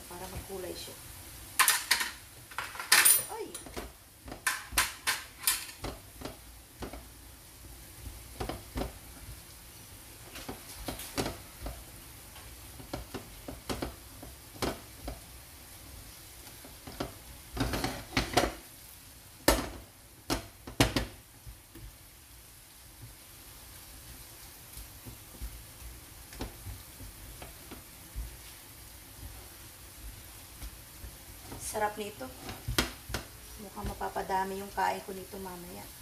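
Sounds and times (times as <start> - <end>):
low steady sizzle: 0.0 - 36.0
spatula scraping a frying pan: 16.4 - 18.6, 25.2 - 34.2.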